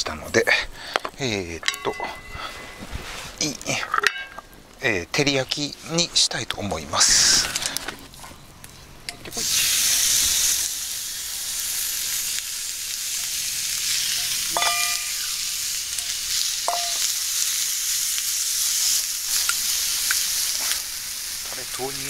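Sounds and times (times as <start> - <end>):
chicken sizzling in hot oil: 9.3 - 22.0.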